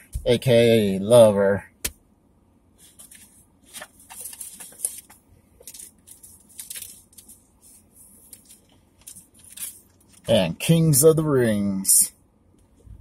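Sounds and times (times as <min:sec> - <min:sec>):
plastic packaging crinkling: 0:03.0 - 0:07.4, 0:08.2 - 0:10.3.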